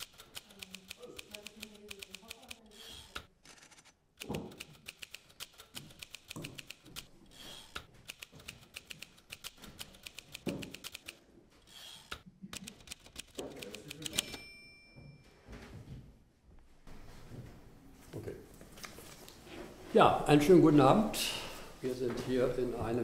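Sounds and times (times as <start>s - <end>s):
typewriter keys clacking: 0.0s - 11.2s, 12.6s - 14.4s.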